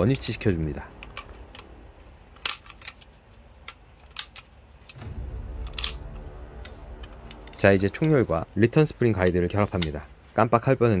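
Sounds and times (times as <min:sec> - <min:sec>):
small plastic and metal clicks: 0:01.0 - 0:05.0.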